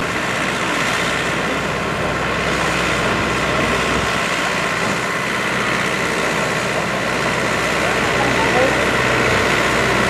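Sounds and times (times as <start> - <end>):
tractor engine running: 0.0 - 10.0.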